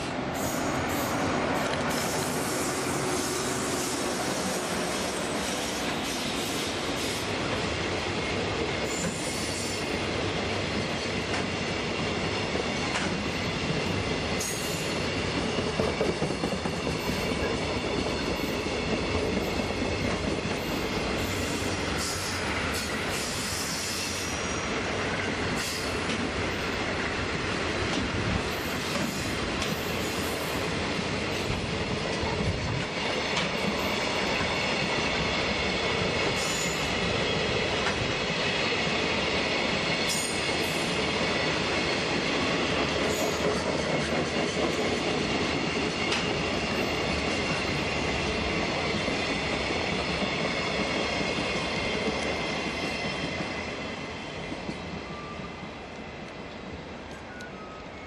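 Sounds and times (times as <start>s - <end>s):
train wheels rumbling on rails: 0.0s - 57.8s
high wheel squeals: 23.1s - 24.9s.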